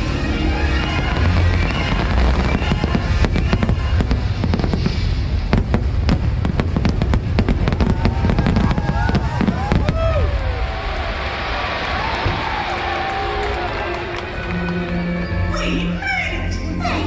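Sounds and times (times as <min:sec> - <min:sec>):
music soundtrack: 0:00.0 - 0:07.5, 0:12.6 - 0:17.0
fireworks bangs and crackles: 0:00.0 - 0:14.5.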